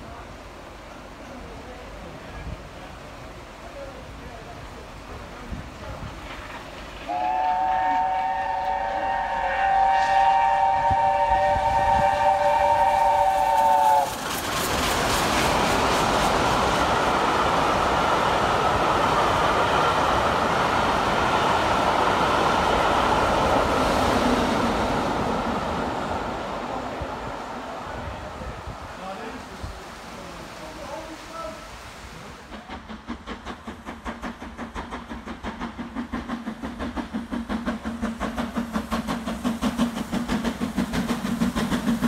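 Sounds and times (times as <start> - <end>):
train rushing on rails: 0.0 - 42.0
steam locomotive whistle: 7.0 - 14.2.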